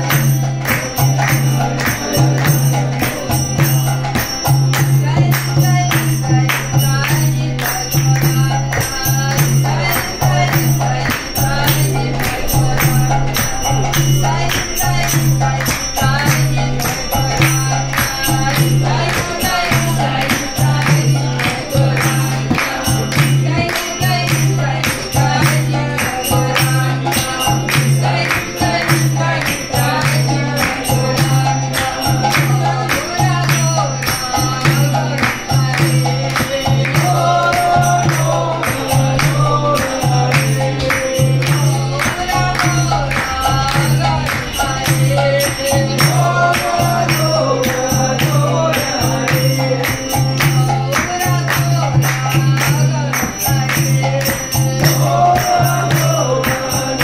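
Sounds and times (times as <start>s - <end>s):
group singing: 0.0s - 57.0s
hand claps: 0.0s - 57.0s
hand drum beat: 0.0s - 57.0s
harmonium: 0.0s - 57.0s
woman singing: 4.7s - 57.0s.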